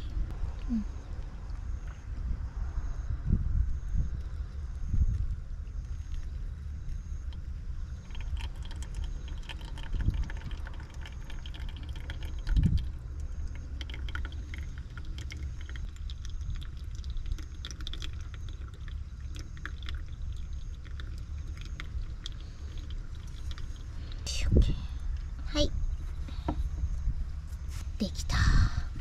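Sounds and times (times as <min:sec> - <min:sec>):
low rumble: 0:00.0 - 0:29.0
trickling and ticking grounds: 0:05.2 - 0:25.7
water pouring onto coffee: 0:08.0 - 0:23.9.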